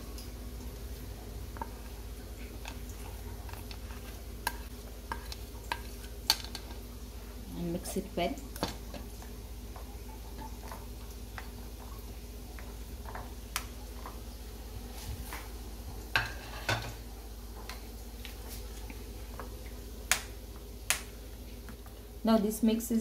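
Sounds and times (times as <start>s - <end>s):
steady low hum: 0.0s - 23.0s
spoon stirring thick yogurt: 0.9s - 6.9s.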